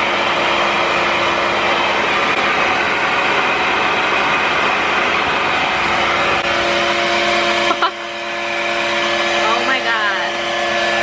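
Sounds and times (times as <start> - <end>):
hair dryer suction and motor hum: 0.0 - 11.0.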